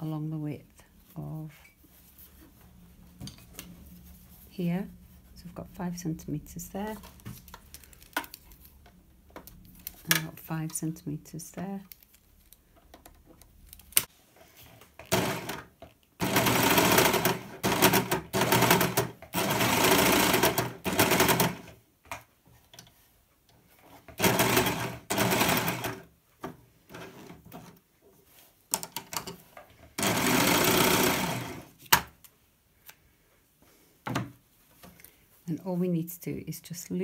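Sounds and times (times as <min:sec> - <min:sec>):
overlocker stitching fabric: 0:14.9 - 0:21.8, 0:24.2 - 0:26.0, 0:30.0 - 0:31.8.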